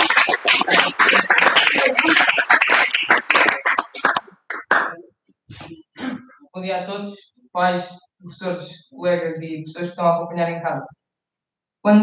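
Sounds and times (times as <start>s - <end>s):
applause: 0.0s - 5.0s.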